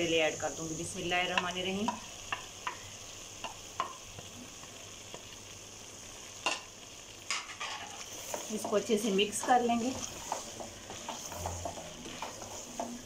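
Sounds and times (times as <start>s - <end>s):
food sizzling in a pot: 0.0s - 13.0s
spoon scraping and knocking: 9.9s - 13.0s.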